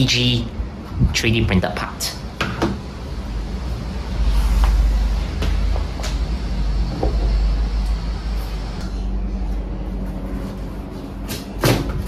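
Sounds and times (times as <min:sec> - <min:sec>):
low rumble: 0:02.9 - 0:11.2.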